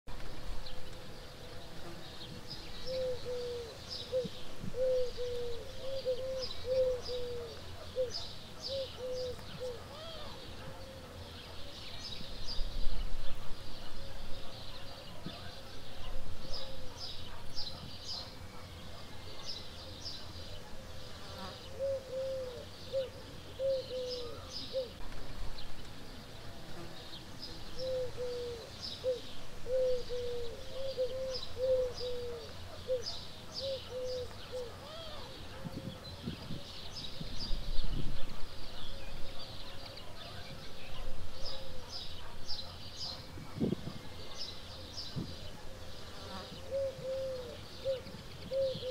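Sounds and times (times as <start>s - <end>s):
birds chirping and twittering: 0.1s - 48.9s
bird hooting notes: 2.8s - 10.4s, 21.7s - 25.0s, 27.8s - 35.3s, 46.6s - 48.9s
wind rumble on microphone: 35.4s - 39.4s, 43.2s - 44.3s, 45.0s - 45.6s.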